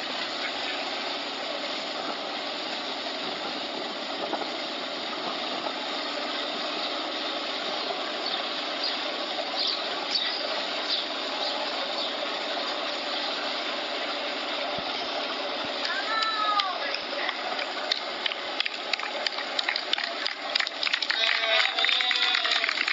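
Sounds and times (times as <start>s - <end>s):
vehicle engine and road noise: 0.0s - 22.9s.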